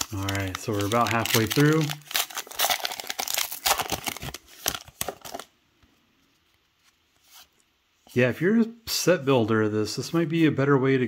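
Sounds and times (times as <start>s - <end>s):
plastic wrapper crinkling and tearing: 0.0s - 5.6s.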